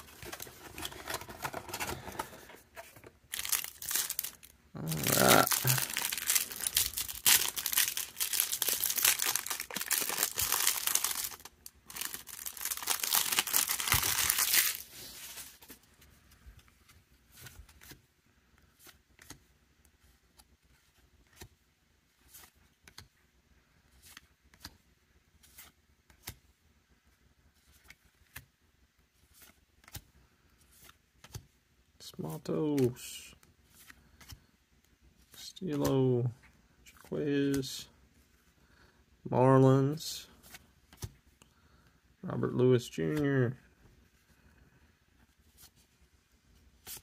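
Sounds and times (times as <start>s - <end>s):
plastic wrapper tearing and crinkling: 3.3s - 15.5s.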